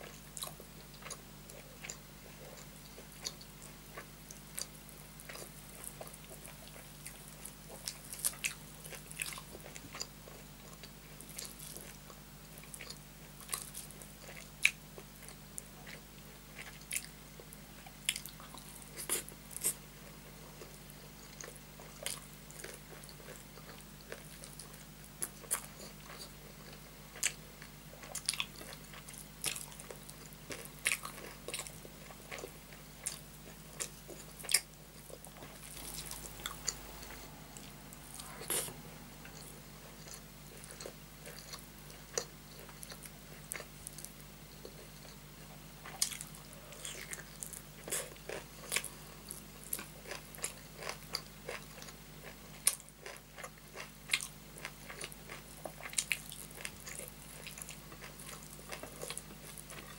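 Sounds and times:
wet chewing: 0:28.0 - 0:45.2.

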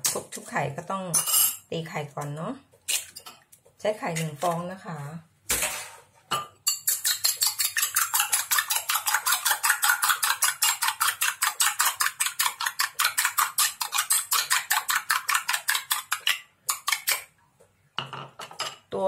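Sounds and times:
spoon clinking in glass bowl: 0:01.1 - 0:01.6, 0:06.4 - 0:10.8.

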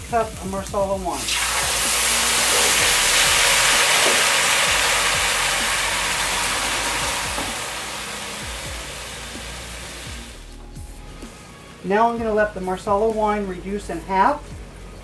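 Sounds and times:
wine sizzling in hot skillet: 0:00.0 - 0:10.6.

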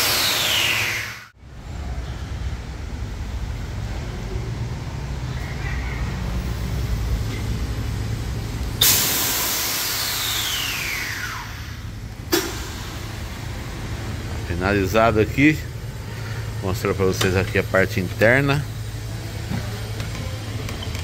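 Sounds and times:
low steady rumble: 0:01.4 - 0:21.0
air suspension hissing: 0:08.7 - 0:14.0.

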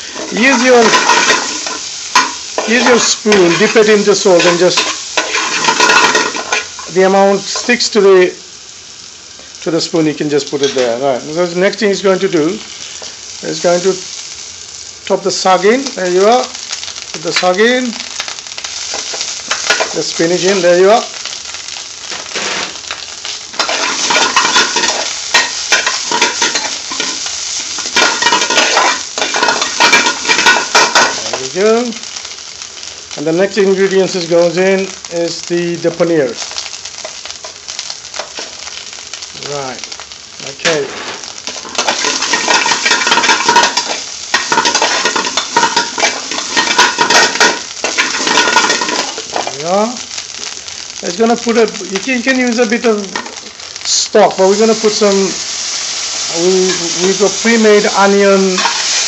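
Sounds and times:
metal spoon scraping a pan: 0:00.0 - 0:07.8, 0:23.6 - 0:31.4, 0:41.0 - 0:49.5, 0:56.6 - 0:59.0
greens sizzling in hot oil: 0:00.0 - 0:59.0
metal spoon scraping pan: 0:04.4 - 0:06.9, 0:23.6 - 0:27.2, 0:58.6 - 0:59.0.

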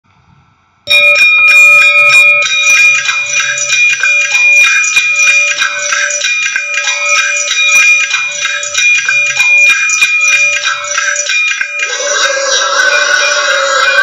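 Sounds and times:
intro music: 0:00.9 - 0:14.0
quick percussive taps: 0:02.4 - 0:11.9.

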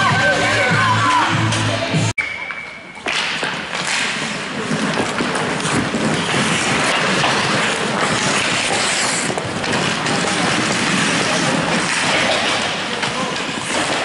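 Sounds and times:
skates scraping on ice: 0:03.1 - 0:14.0.

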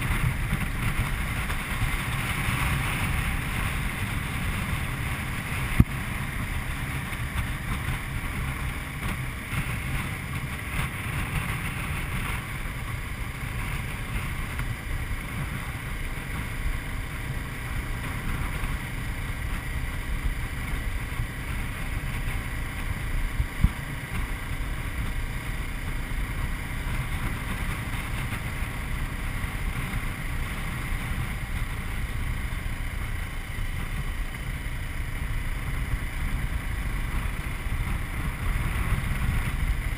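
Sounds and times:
motorcycle engine cruising: 0:00.0 - 0:39.9
wind rumble on microphone: 0:00.0 - 0:39.9.

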